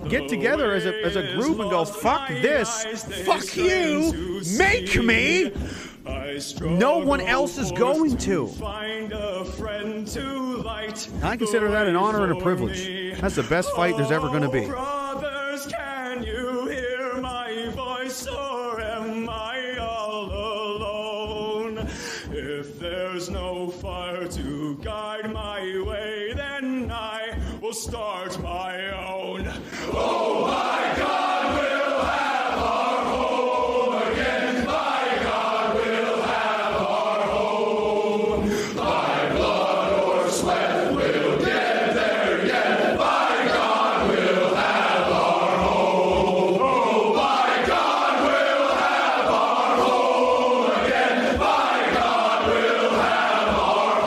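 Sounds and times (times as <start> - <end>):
operatic singing voice: 0.0 - 54.0
steady low beat: 0.0 - 54.0
male voices chanting in unison: 27.1 - 54.0.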